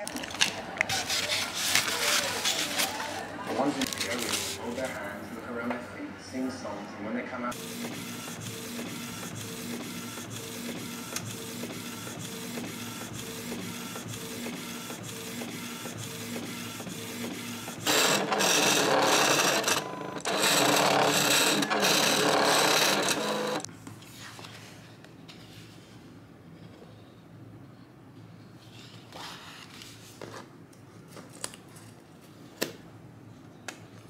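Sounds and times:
inkjet printer whirring: 0:00.9 - 0:05.8, 0:07.5 - 0:23.7
loud printer mechanical noise: 0:07.5 - 0:23.7.

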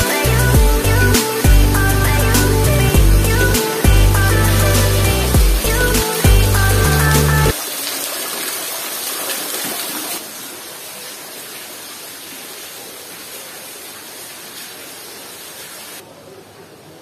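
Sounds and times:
water splashing onto rocks: 0:05.7 - 0:16.0.

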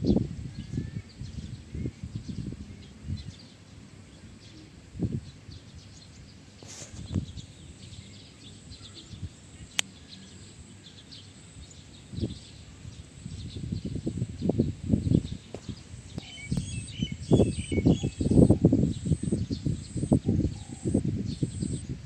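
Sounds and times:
bird chirps: 0:07.1 - 0:21.9.

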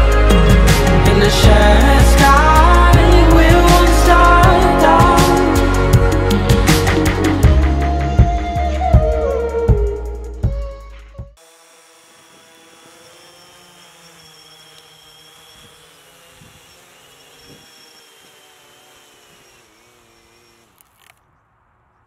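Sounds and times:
drone propellers whining: 0:11.4 - 0:21.2.

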